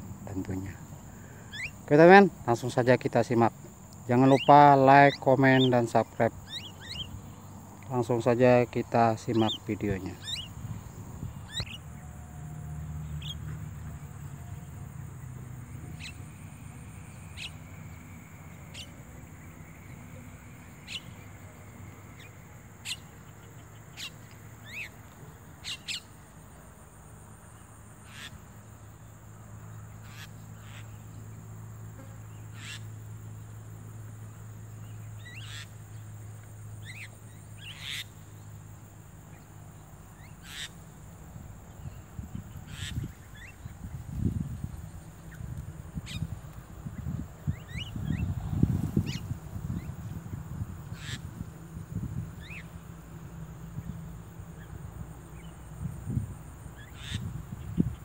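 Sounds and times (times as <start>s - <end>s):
birds giving sharp calls: 0.3s - 13.9s, 14.8s - 26.5s, 27.7s - 28.6s, 29.9s - 31.2s, 32.3s - 33.0s, 34.9s - 36.2s, 36.8s - 38.4s, 40.1s - 40.9s, 41.7s - 51.5s, 52.4s - 52.7s, 55.4s - 58.0s.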